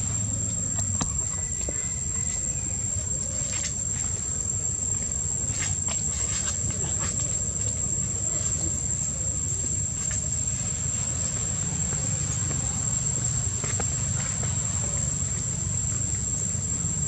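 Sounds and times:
continuous low rumble: 0.0 - 17.0
insects droning: 0.0 - 17.0.

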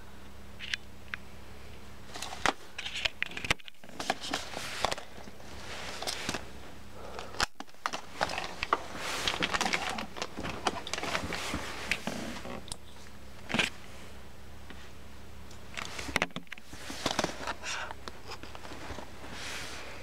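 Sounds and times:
plastic blister pack crinkling: 7.1 - 12.8.

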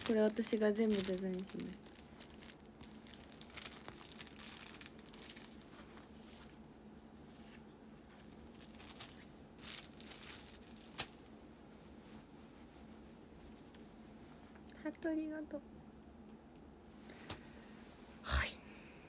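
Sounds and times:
packaging crinkling: 0.0 - 6.6, 8.1 - 11.3.

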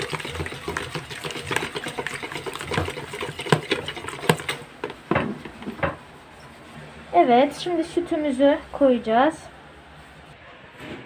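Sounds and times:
whisk rattling against bowl: 0.0 - 6.0.

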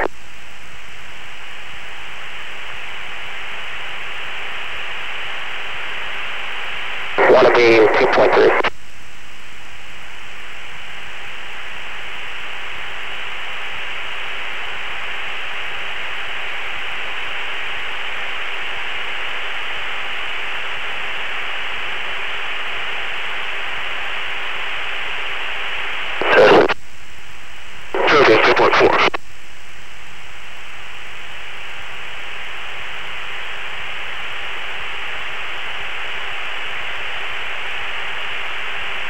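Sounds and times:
radio hiss: 0.0 - 0.3, 1.0 - 8.8, 10.3 - 39.0
loud radio burst: 7.2 - 8.7, 26.2 - 26.8, 28.0 - 29.2.

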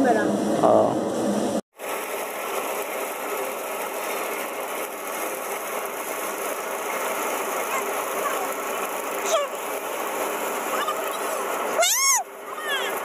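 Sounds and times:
thresher drum whirring: 0.0 - 13.0.

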